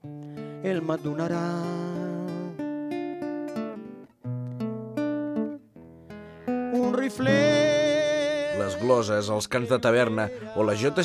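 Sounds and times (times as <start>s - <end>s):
classical guitar fingerstyle: 0.0s - 9.0s
man singing held note: 6.9s - 9.1s.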